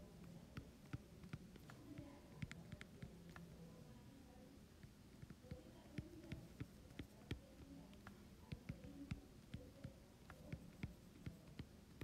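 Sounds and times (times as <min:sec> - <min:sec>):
stylus tapping on glass screen: 0:04.8 - 0:12.0.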